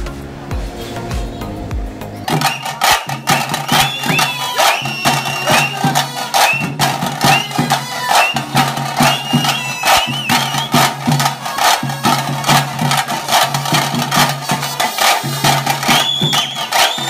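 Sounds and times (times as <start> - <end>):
electronic music with percussive beat: 0.0 - 17.0.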